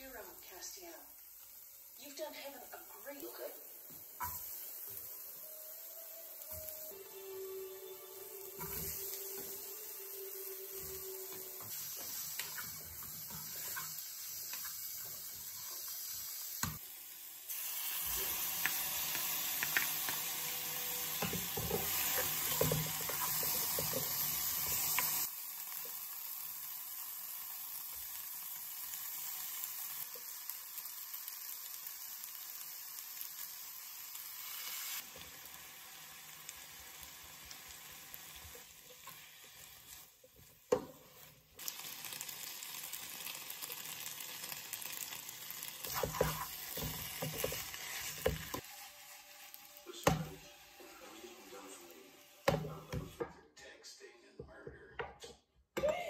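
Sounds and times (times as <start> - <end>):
food sizzling in a frying pan: 0.0 - 53.2
spatula scraping and tapping pan: 21.2 - 25.1, 45.8 - 48.7.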